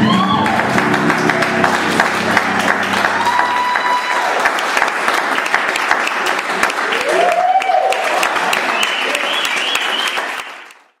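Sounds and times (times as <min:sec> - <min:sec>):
person cheering: 0:00.0 - 0:00.8, 0:02.9 - 0:04.6, 0:06.9 - 0:08.3
audience applauding: 0:00.0 - 0:11.0.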